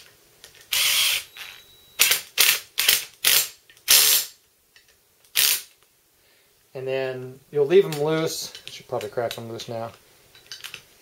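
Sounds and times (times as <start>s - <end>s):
cordless drill driving bolts: 0.7s - 4.2s.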